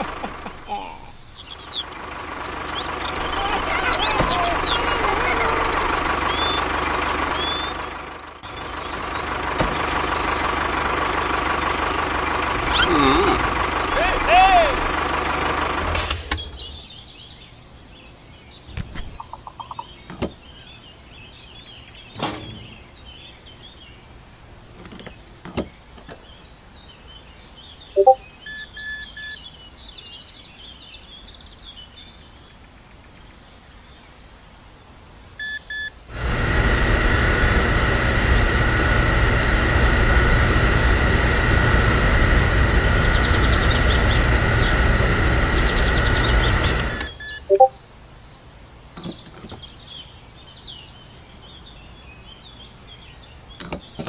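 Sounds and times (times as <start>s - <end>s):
birds chirping: 0.0s - 54.0s
short electronic beeps: 28.0s - 29.4s, 35.4s - 35.9s, 47.1s - 47.8s
electric pump motor whining: 36.1s - 47.2s.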